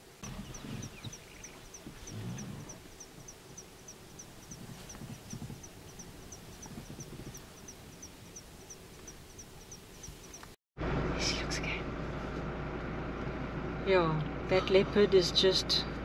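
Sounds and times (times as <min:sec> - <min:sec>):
insect chirping: 0:00.0 - 0:10.6.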